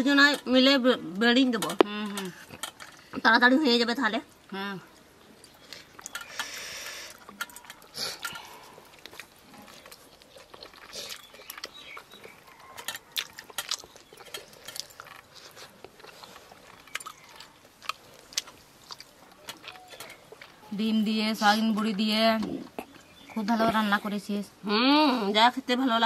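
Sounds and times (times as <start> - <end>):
chewing and lip-smacking: 4.3 - 20.9.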